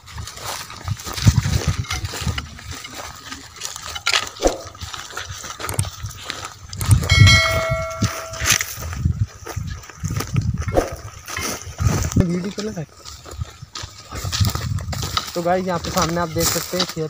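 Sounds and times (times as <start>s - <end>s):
footsteps on dry soil: 0.0s - 17.0s
steady pitched tone: 7.0s - 8.7s.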